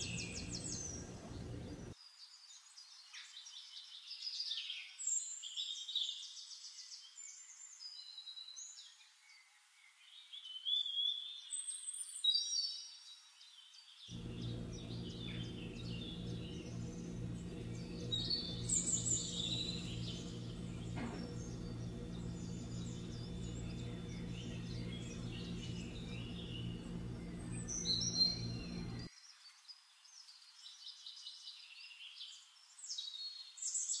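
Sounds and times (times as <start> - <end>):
songbirds singing: 0.0 - 2.0, 14.1 - 29.1
steady low hum: 0.0 - 2.0, 14.1 - 29.1.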